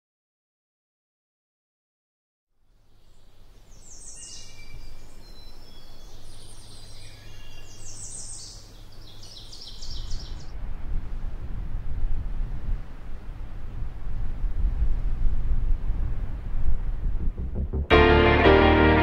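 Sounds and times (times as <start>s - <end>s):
birds chirping and trilling: 2.9s - 10.5s
steady low rumble: 10.5s - 19.0s.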